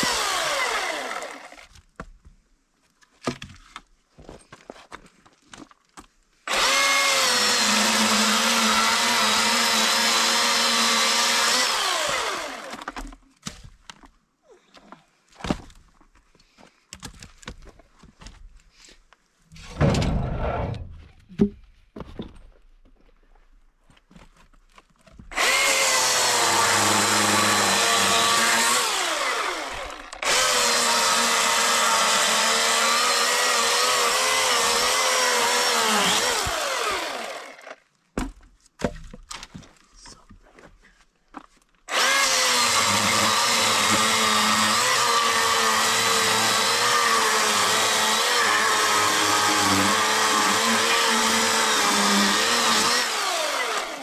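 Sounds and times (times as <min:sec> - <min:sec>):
chainsaw cutting log: 0:00.0 - 0:01.8, 0:06.5 - 0:13.6, 0:25.3 - 0:37.8, 0:41.9 - 0:54.0.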